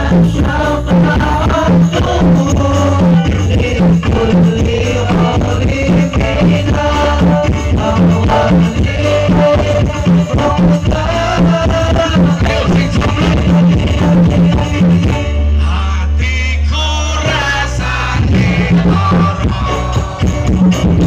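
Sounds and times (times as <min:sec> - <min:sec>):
music with steady drum beat: 0:00.0 - 0:15.5, 0:17.2 - 0:21.0.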